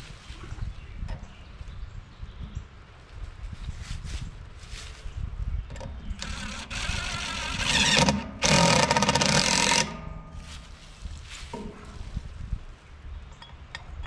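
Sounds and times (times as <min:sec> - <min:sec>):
cordless driver whirring: 0:06.2 - 0:10.0.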